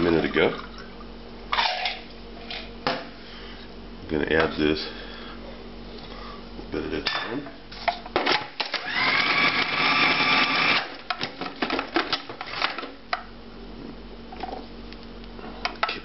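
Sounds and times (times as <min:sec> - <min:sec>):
food processor motor chopping: 0:08.6 - 0:10.9.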